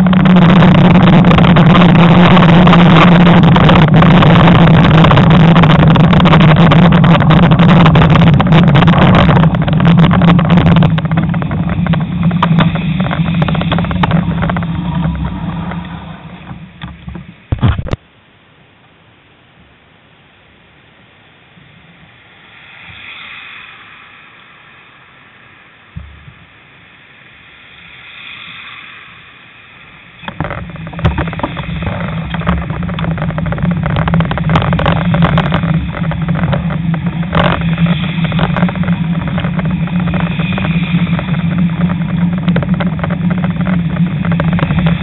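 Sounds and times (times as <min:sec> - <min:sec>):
vehicles passing: 0:00.0 - 0:17.9
wind buffeting microphone: 0:00.0 - 0:18.0, 0:30.0 - 0:45.0.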